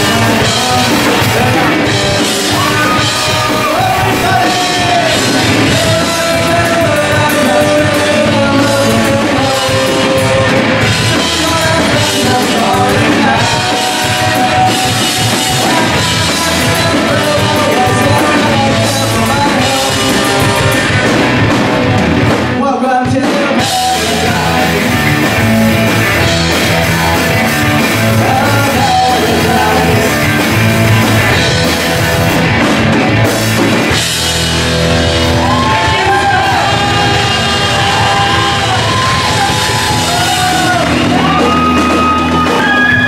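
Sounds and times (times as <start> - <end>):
person singing: 0.0 - 21.2, 22.6 - 30.8, 35.4 - 43.0
punk rock band playing: 0.0 - 43.0.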